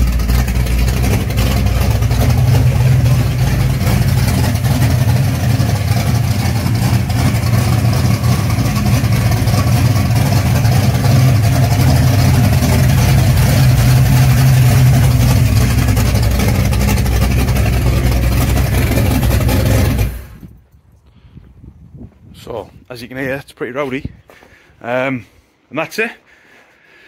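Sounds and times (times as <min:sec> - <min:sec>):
car engine running: 0:00.0 - 0:20.5.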